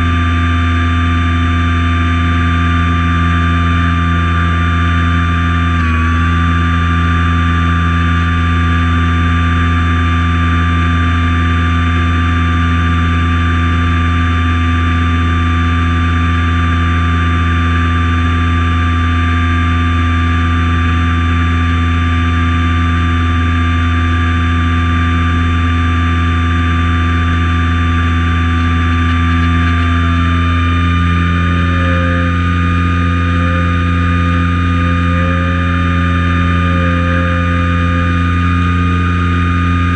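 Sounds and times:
plane engine droning: 0:27.6 - 0:39.9.

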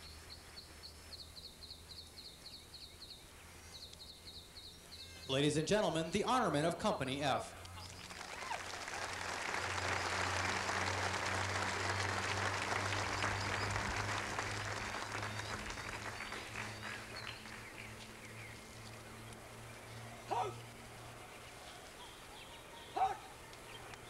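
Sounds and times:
low steady hum: 0:00.0 - 0:24.0
crowd applauding: 0:07.8 - 0:19.2.

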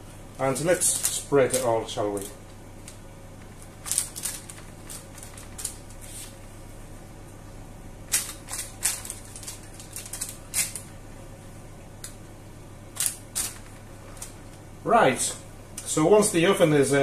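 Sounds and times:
faint steady hum: 0:00.0 - 0:17.0
baking paper crinkling: 0:00.4 - 0:06.5, 0:08.1 - 0:11.0, 0:13.0 - 0:14.7.

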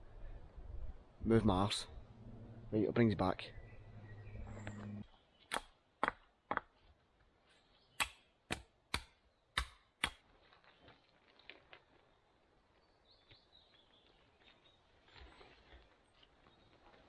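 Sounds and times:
axe chopping wood: 0:05.5 - 0:06.7, 0:08.0 - 0:10.2.

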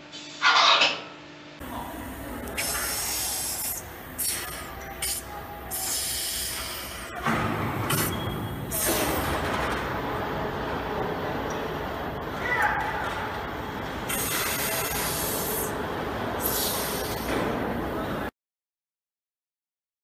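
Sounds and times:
compressed air hissing bursts: 0:02.5 - 0:07.1, 0:14.1 - 0:15.7, 0:16.4 - 0:17.3.

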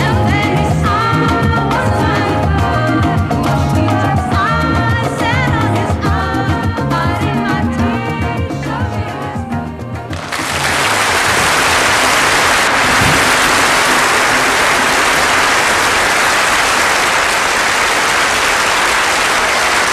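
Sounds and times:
audience applause: 0:10.1 - 0:19.9.

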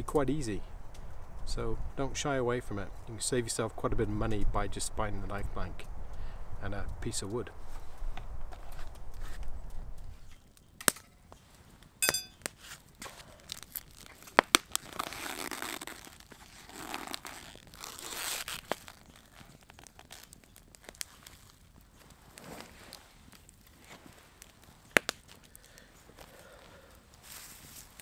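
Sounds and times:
sharp clicks and snaps: 0:06.8 - 0:11.1, 0:24.4 - 0:27.2
paper wrapping crinkling: 0:12.5 - 0:28.0.

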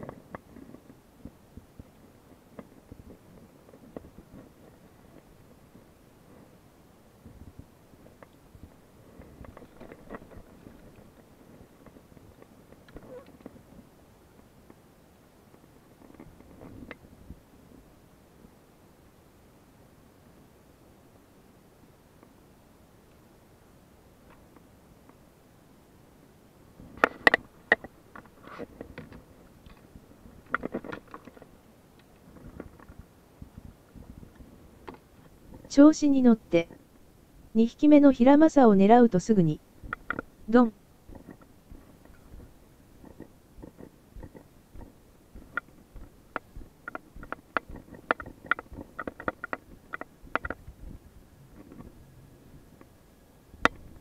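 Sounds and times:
gear knocks and clicks: 0:41.1 - 0:50.7.

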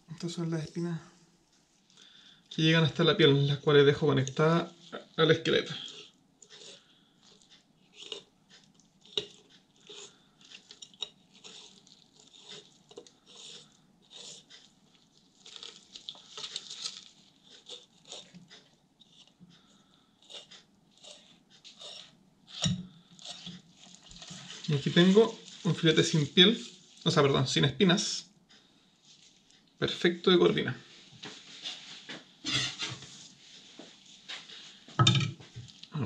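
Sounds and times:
knife scraping over fish bones: 0:04.8 - 0:27.1, 0:32.5 - 0:33.2.

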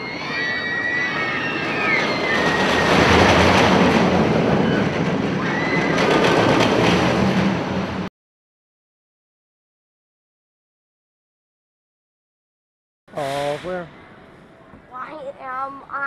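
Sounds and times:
high wheel squeals: 0:00.0 - 0:03.6, 0:04.5 - 0:06.4
roller coaster rumbling on track: 0:00.0 - 0:08.1, 0:13.1 - 0:16.0.

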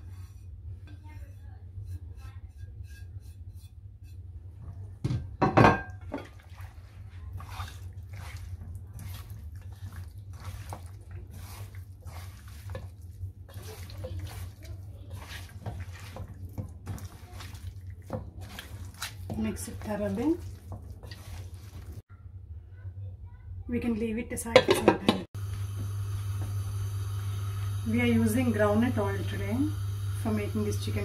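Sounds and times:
plate knocking on steel bowl: 0:05.0 - 0:06.0
hands squishing raw chicken: 0:06.4 - 0:22.0.

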